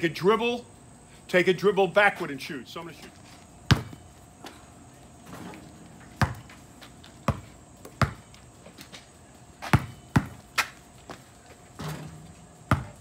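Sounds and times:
basketball bouncing on asphalt: 0:03.4 - 0:04.6, 0:05.8 - 0:13.0.

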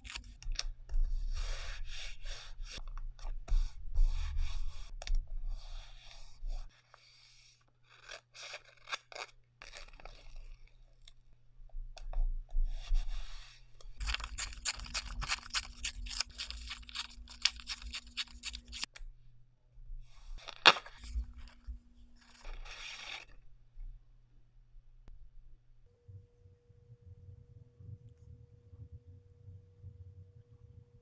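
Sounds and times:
paper tearing slowly: 0:00.0 - 0:00.4, 0:07.8 - 0:10.7, 0:14.0 - 0:18.9, 0:22.2 - 0:23.4
paper rustling: 0:14.0 - 0:18.9, 0:20.3 - 0:23.4.

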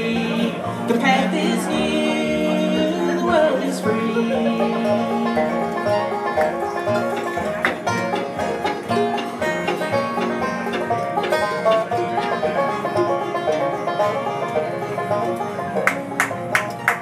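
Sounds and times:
acoustic guitar: 0:00.0 - 0:17.0
banjo picking fast notes: 0:00.0 - 0:17.0
upright bass: 0:00.0 - 0:17.0
sharp strummed strokes: 0:04.8 - 0:16.2.

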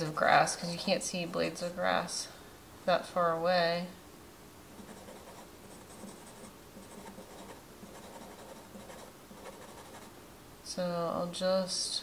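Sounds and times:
pencil scratching on paper: 0:04.8 - 0:10.1.

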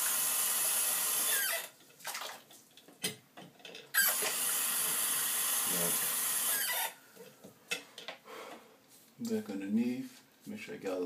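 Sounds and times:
tap water running: 0:04.0 - 0:06.9.

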